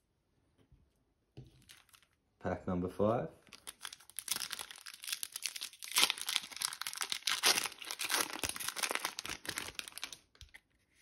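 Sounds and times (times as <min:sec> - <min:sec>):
foil wrapper tearing and crinkling: 0:03.5 - 0:10.6.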